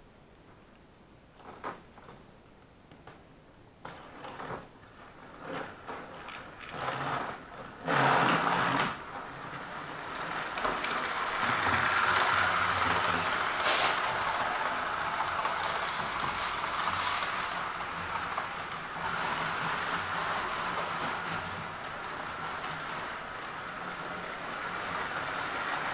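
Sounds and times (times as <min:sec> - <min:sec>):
model trains clicking and knocking: 0:03.9 - 0:25.9
model train rattle: 0:05.9 - 0:25.9
model train motor whirring: 0:07.2 - 0:25.9.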